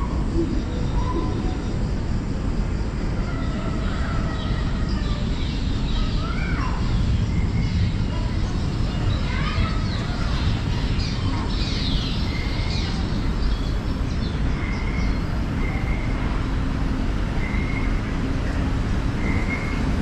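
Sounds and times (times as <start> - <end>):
recorded bird chirps over loudspeakers: 0.0 - 20.0
tunnel ambience hiss and rumble: 0.0 - 20.0.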